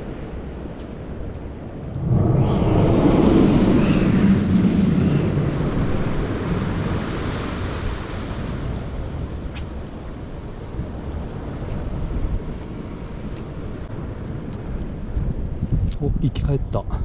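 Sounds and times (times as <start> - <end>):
wind buffeting microphone: 0.0 - 17.0
sea surf washing in: 1.7 - 14.0.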